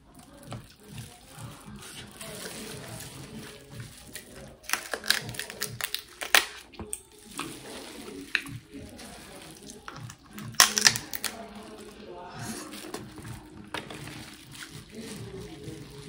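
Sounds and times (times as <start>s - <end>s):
plastic gloves and bag crinkling: 0.0s - 16.0s
slurping: 0.0s - 16.0s
crab shells cracking: 4.1s - 8.8s, 9.6s - 11.6s.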